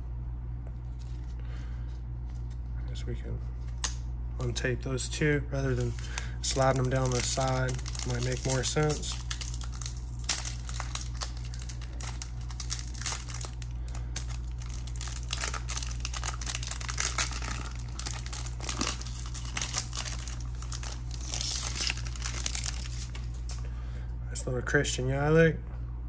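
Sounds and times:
foil wrapper crinkling: 5.7s - 23.6s.

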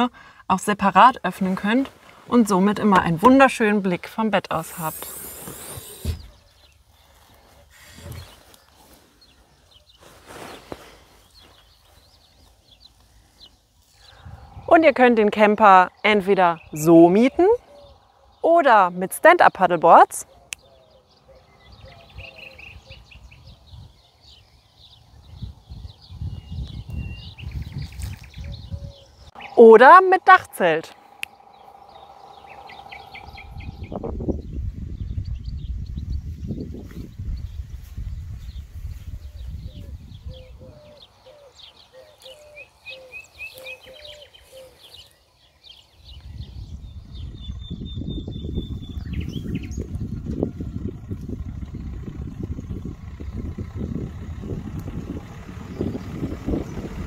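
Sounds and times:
small birds chirping: 0.0s - 57.0s
low irregular rumble: 6.2s - 20.3s, 21.2s - 41.2s, 46.2s - 57.0s.

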